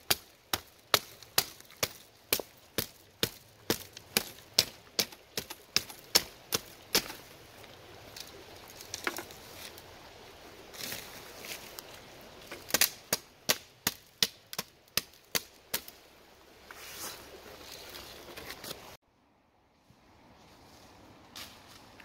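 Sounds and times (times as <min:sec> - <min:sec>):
machete chopping saplings: 0:00.0 - 0:07.3, 0:12.4 - 0:16.0
rustle of brush: 0:00.0 - 0:13.4, 0:14.6 - 0:19.0, 0:19.6 - 0:22.0.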